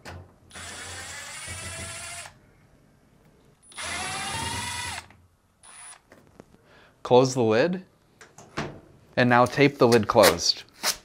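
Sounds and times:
power drill running: 0.5 - 2.4, 3.7 - 6.0.

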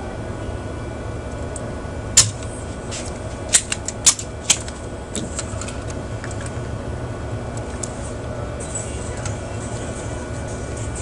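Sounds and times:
steady low hum: 0.0 - 11.0
desoldering pump snapping: 2.2 - 6.5.

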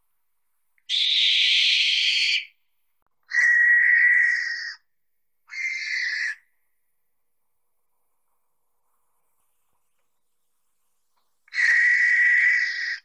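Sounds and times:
owl screeching: 0.9 - 2.6, 3.3 - 4.9, 5.5 - 6.5, 11.5 - 13.0.

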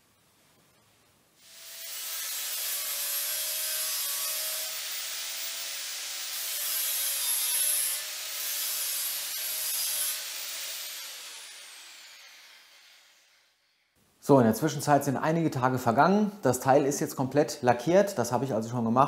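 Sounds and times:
angle grinder grinding steel: 1.4 - 13.8.

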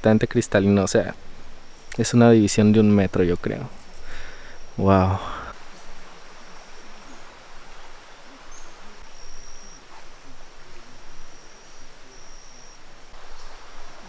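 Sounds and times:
river water rushing: 5.5 - 14.0
thin high tone: 8.3 - 13.2.

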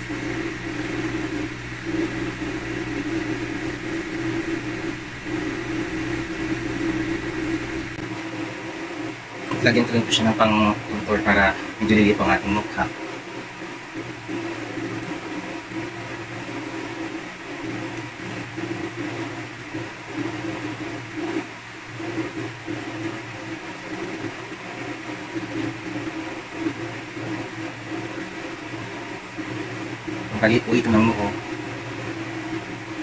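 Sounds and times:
small electric motor humming: 0.0 - 8.0.

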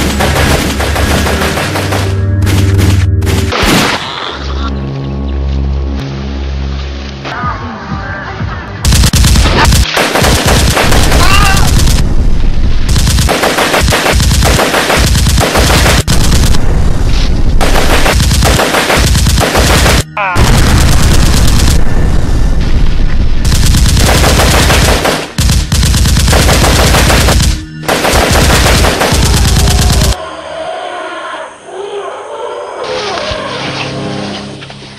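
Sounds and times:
rapid automatic gunfire: 0.0 - 3.6, 8.8 - 12.0, 12.9 - 16.6, 17.6 - 22.0, 23.4 - 30.2.

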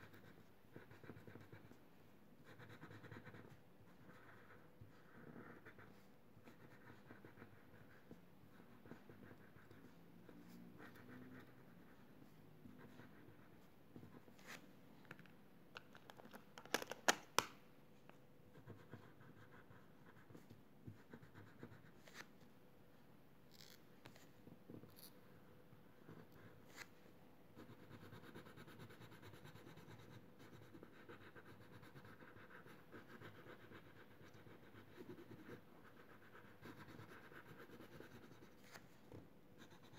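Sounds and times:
crayon scratching on paper: 0.0 - 1.8, 2.4 - 14.6, 18.6 - 22.3, 27.6 - 38.8.

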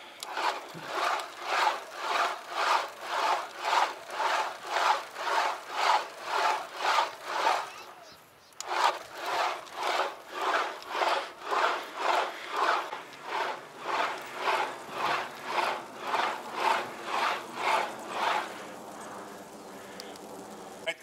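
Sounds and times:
heavy rasping breathing: 8.6 - 20.9.

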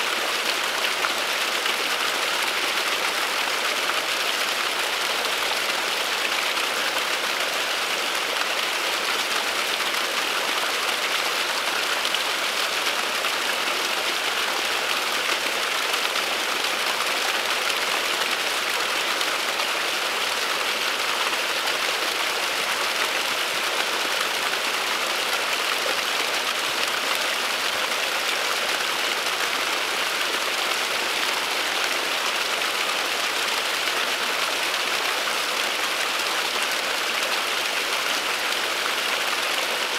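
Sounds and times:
small waterfall splashing: 0.0 - 39.9.

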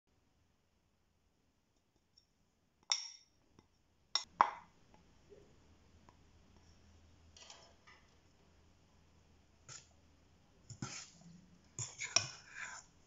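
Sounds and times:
spoon scraping into flour: 10.7 - 13.0.

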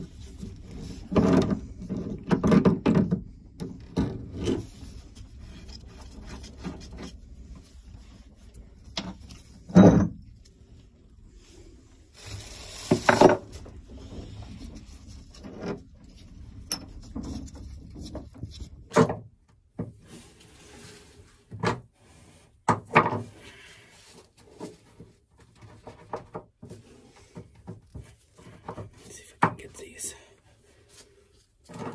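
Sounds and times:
rubbing and scraping: 0.0 - 19.0, 19.9 - 22.6, 23.2 - 31.9
sharp knocks and clunks: 1.1 - 4.6.

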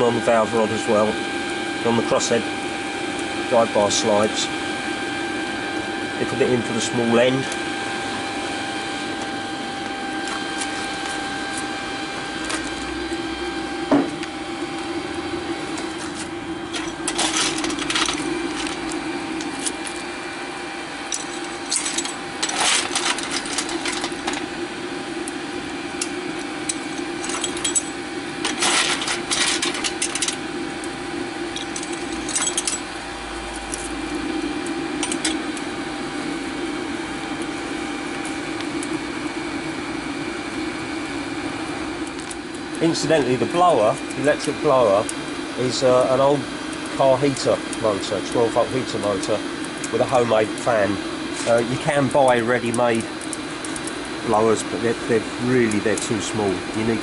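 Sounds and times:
electric blower motor running: 0.0 - 57.0
metallic clinking and rattling: 16.7 - 20.0, 21.1 - 24.5, 26.7 - 30.4, 31.6 - 32.8.

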